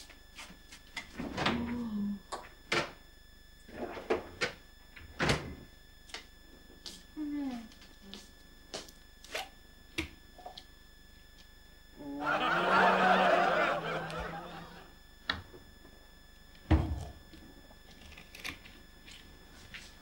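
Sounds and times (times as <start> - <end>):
studio audience laughter: 12.1 - 15.0.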